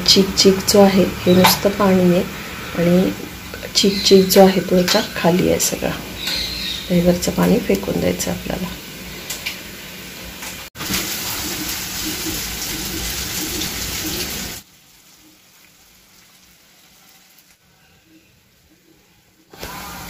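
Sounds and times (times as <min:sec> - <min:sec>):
water splashing while poured: 0:10.8 - 0:14.6.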